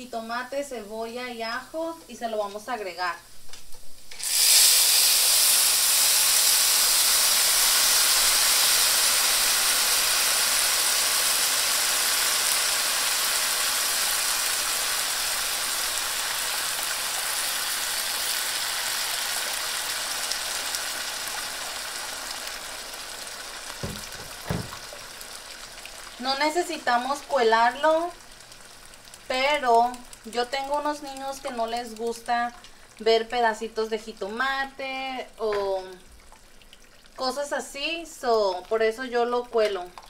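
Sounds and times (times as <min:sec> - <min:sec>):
puree sizzling in hot oil: 0:00.2 - 0:40.0.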